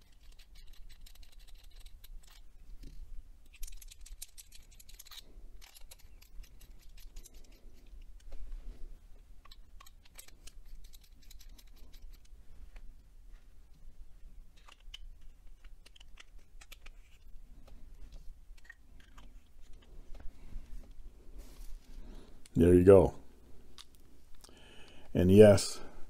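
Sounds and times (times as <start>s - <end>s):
pen parts clicking: 0.0s - 2.5s, 3.4s - 8.4s, 9.4s - 12.3s, 14.5s - 17.8s, 18.5s - 20.2s.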